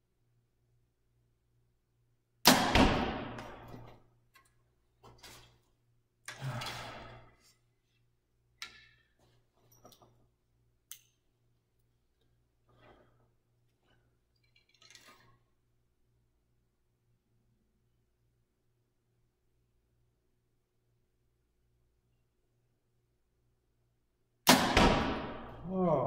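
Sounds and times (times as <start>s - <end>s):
compound bow shot crack: 2.4s - 3.8s, 24.5s - 25.5s.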